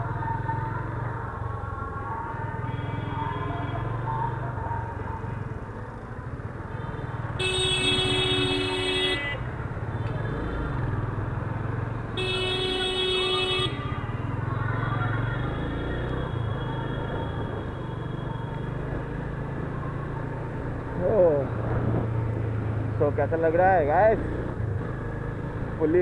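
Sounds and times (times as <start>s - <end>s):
road noise: 0.0s - 26.0s
vehicle horn honking: 7.4s - 9.5s, 12.2s - 13.9s.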